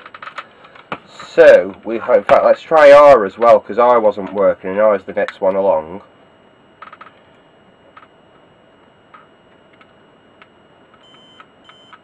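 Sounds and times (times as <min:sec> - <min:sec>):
continuity tester beeping: 0:04.2 - 0:12.0.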